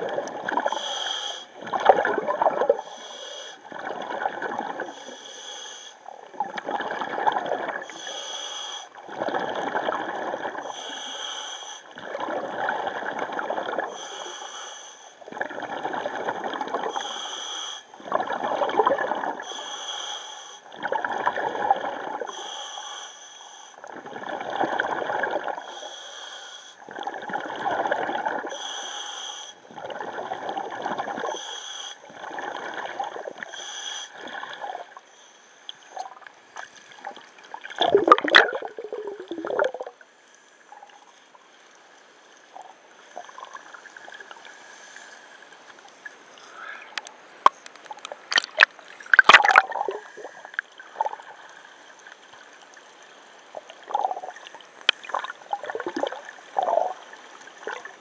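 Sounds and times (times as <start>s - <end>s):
gurgling exhaled bubbles: 0.0s - 0.9s, 1.6s - 2.9s, 3.6s - 5.0s, 6.1s - 8.0s, 9.0s - 10.8s, 12.0s - 14.0s, 15.3s - 17.1s, 18.0s - 19.4s, 20.7s - 22.3s, 23.9s - 25.7s, 26.9s - 28.6s, 29.7s - 31.4s, 32.1s - 33.5s, 36.9s - 40.0s, 48.1s - 51.4s, 53.5s - 58.0s
hissing regulator inhale: 0.7s - 1.6s, 2.8s - 3.6s, 4.9s - 6.0s, 7.9s - 9.0s, 10.7s - 12.0s, 14.0s - 15.3s, 16.9s - 18.0s, 19.4s - 20.7s, 22.3s - 23.9s, 25.6s - 26.8s, 28.5s - 29.6s, 31.3s - 32.1s, 33.4s - 34.3s, 44.4s - 45.5s.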